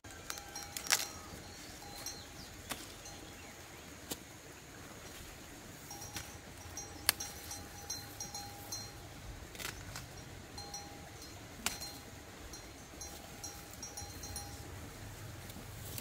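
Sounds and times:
corn leaves rustling: 0.0s - 16.0s
corn ears snapping off: 0.2s - 1.3s, 2.6s - 3.0s, 7.0s - 7.4s, 9.5s - 10.2s, 11.6s - 12.0s.

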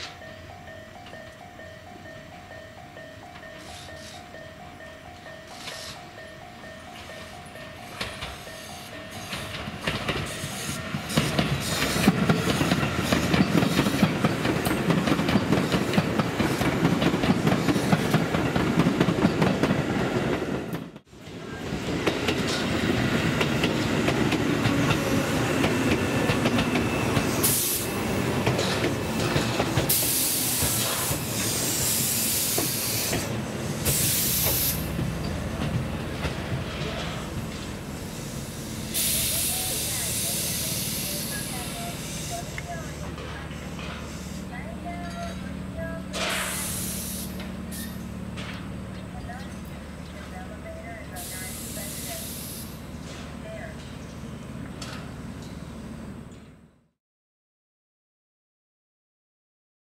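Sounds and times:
electric train rumbling: 0.0s - 56.8s
train hissing bursts: 5.5s - 6.2s, 7.8s - 14.2s, 26.8s - 28.8s, 29.8s - 35.0s, 37.1s - 44.6s, 46.1s - 48.1s, 51.1s - 53.1s
wheels clicking over rail joints: 7.9s - 21.1s, 42.5s - 51.3s.

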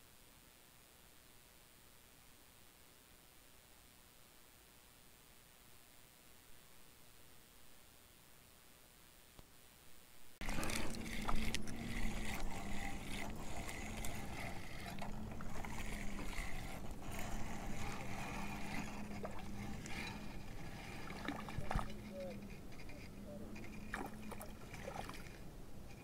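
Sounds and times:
lake water lapping: 10.4s - 25.6s
low wavering hum: 10.4s - 26.0s.

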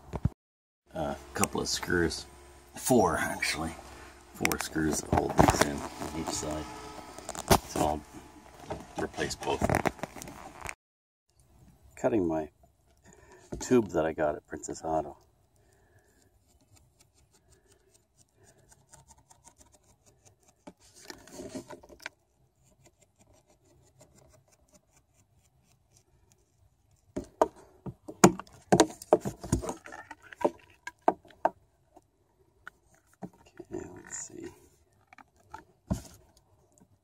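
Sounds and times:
knife sawing through tubing: 16.1s - 21.7s, 22.6s - 26.5s.

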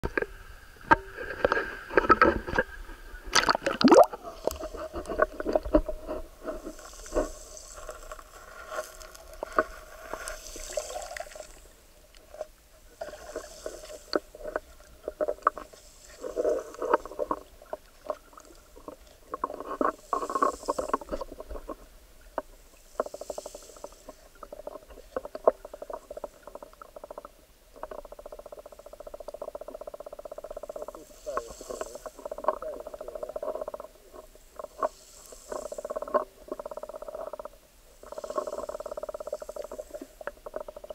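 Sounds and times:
small underwater clicks: 0.1s - 12.4s, 13.3s - 40.9s
muffled underwater noise: 23.0s - 40.9s.

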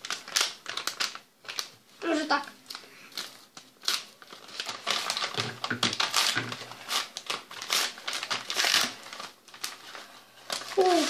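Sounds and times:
paper envelope crinkling: 0.0s - 11.0s
scissors cutting paper: 10.8s - 11.0s.

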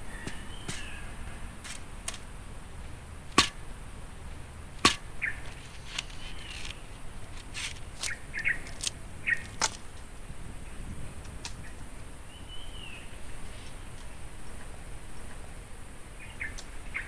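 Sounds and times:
machete knocking on bamboo: 0.2s - 1.0s, 3.3s - 3.7s, 4.8s - 5.2s, 8.8s - 9.8s
bamboo cracking and splitting: 1.6s - 10.1s.

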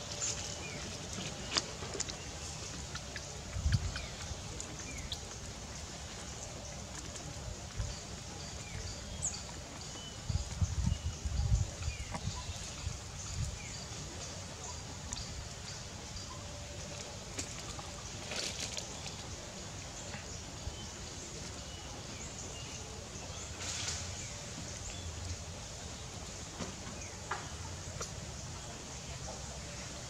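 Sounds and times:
steady background hiss: 11.2s - 30.0s.

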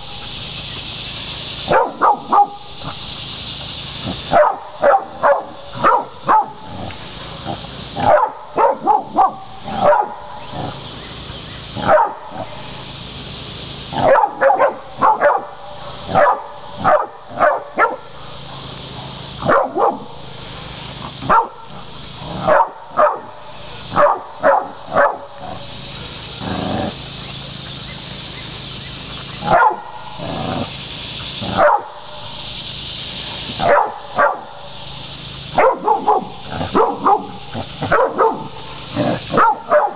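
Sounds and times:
dogs barking: 1.6s - 3.2s, 4.1s - 10.9s, 11.7s - 12.6s, 13.9s - 27.2s, 29.2s - 30.8s, 31.4s - 32.3s, 33.6s - 34.8s, 35.4s - 39.9s.

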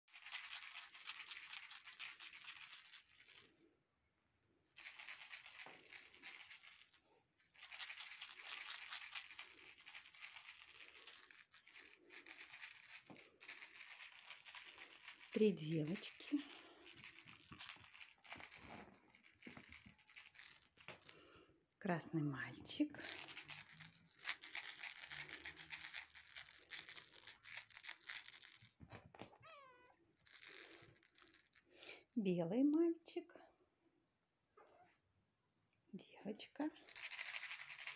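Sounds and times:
crinkling rustle of shaking: 0.0s - 3.6s, 4.8s - 21.4s, 22.6s - 29.4s, 30.2s - 31.8s, 36.8s - 37.9s.

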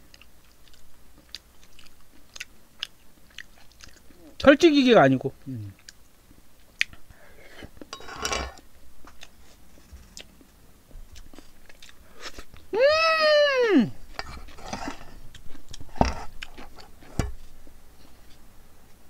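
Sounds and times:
chewing: 0.0s - 4.3s, 5.7s - 7.0s, 9.0s - 10.5s, 11.2s - 12.6s, 14.1s - 17.0s
high-pitched vocal sound: 12.8s - 14.0s.

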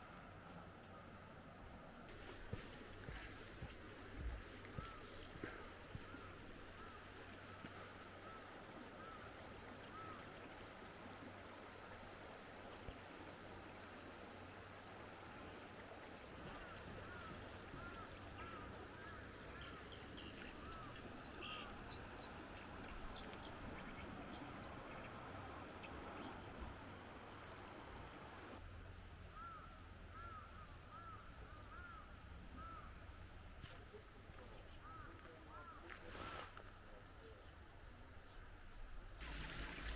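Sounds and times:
stream running over stones: 0.0s - 28.6s, 39.2s - 39.9s
bird calling repeatedly: 2.1s - 9.2s.

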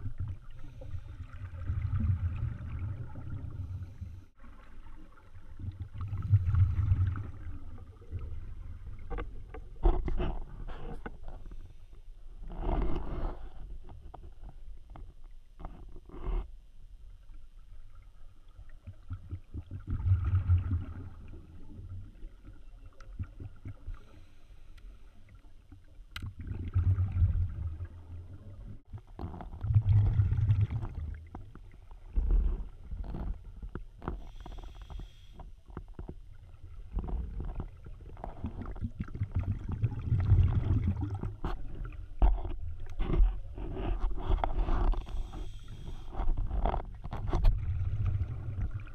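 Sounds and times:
muffled underwater rumbling: 0.0s - 11.6s, 25.3s - 48.9s.

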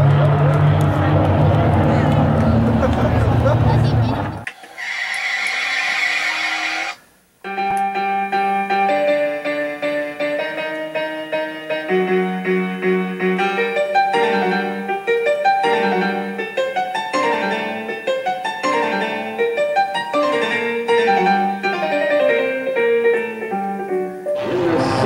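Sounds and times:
piano music: 7.5s - 25.0s.

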